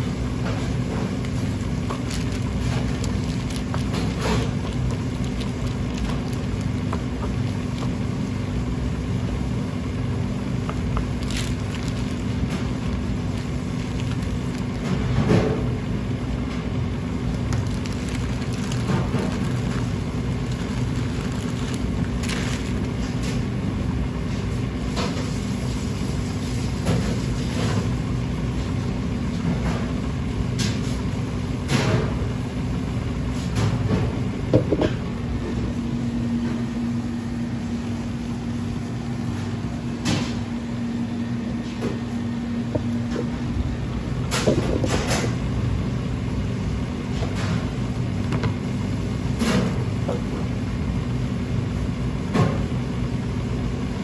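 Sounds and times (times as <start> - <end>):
kitchen equipment hum: 0.0 - 54.0
plastic wrap and tubs rustling: 0.3 - 9.1, 10.4 - 15.8, 17.1 - 23.5.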